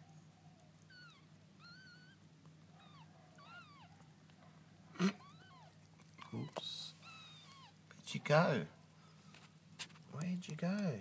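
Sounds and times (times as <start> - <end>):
low steady hum: 0.0 - 11.0
kittens mewing: 0.8 - 4.2, 4.9 - 8.0.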